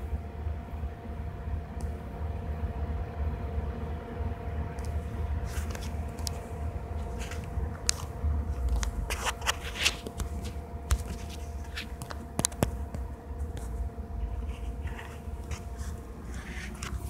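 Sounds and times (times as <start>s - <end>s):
faint steady hum: 0.0s - 17.0s
low rumble: 0.0s - 17.0s
handling clicks and scrapes: 7.0s - 17.0s.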